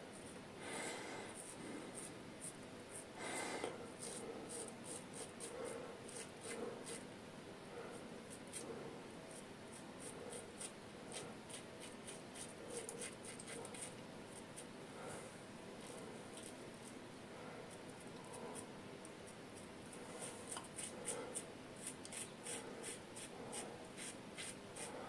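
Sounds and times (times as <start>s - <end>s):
razor scraping through stubble: 4.0s - 7.0s, 9.3s - 14.7s, 19.6s - 25.0s.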